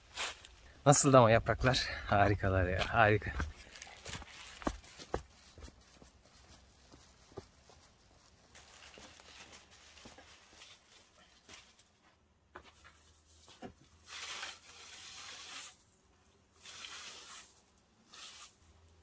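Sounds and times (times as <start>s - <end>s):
rustling: 2.8s - 15.8s.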